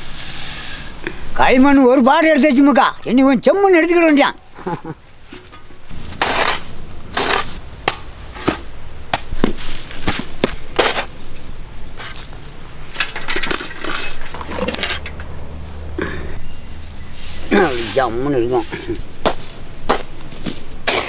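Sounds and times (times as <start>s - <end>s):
hand tool scraping soil: 5.2s - 7.6s, 9.4s - 11.1s, 12.0s - 12.6s, 16.5s - 21.0s.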